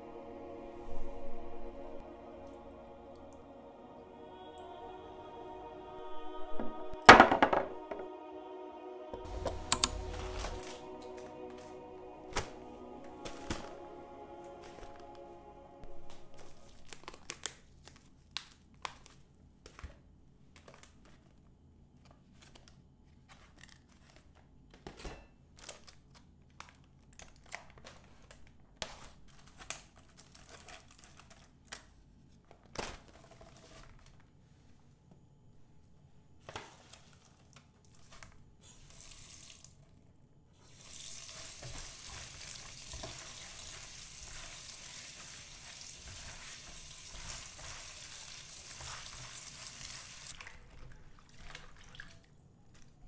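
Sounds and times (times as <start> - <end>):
food sizzling in a pan: 40.6 - 50.4.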